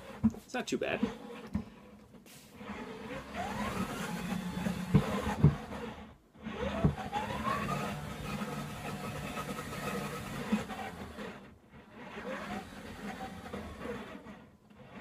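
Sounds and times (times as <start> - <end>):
electric motors whining: 0.0 - 15.0.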